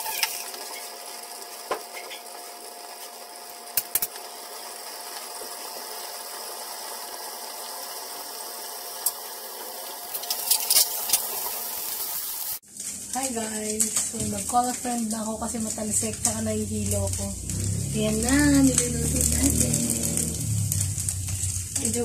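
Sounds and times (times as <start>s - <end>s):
fish frying in oil: 0.0s - 22.0s
oil popping and spattering: 10.1s - 11.7s, 12.8s - 22.0s.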